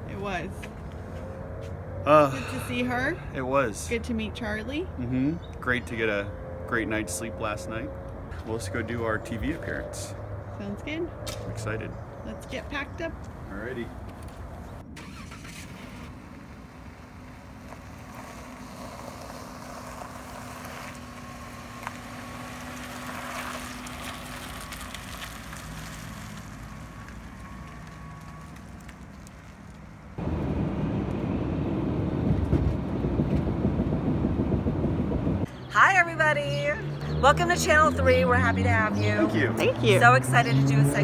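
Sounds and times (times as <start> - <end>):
road noise: 0.0 - 41.0
van engine rumble: 13.0 - 41.0
wind buffeting: 30.2 - 41.0.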